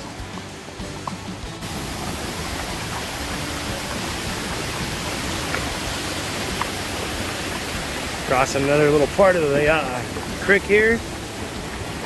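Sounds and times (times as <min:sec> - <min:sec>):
creek water rushing over rocks: 0:00.0 - 0:12.0.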